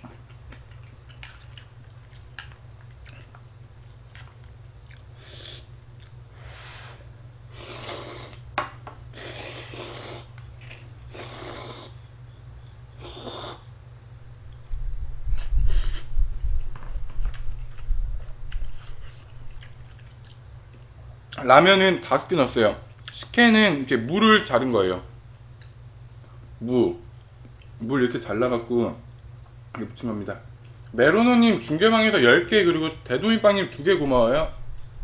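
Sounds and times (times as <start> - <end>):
chewing close to microphone: 0.0 - 6.2, 18.5 - 20.8
steady low hum: 0.0 - 35.0.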